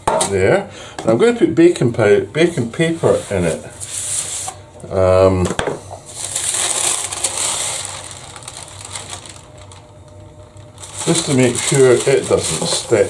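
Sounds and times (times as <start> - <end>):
baking paper rustling: 2.4 - 4.6, 6.0 - 13.0.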